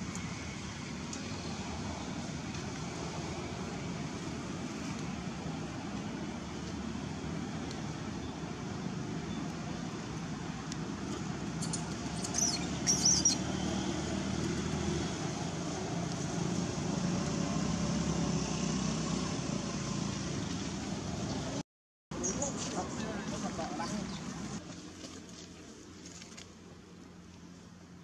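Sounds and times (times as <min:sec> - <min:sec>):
baby monkey squealing: 0:11.6 - 0:13.5.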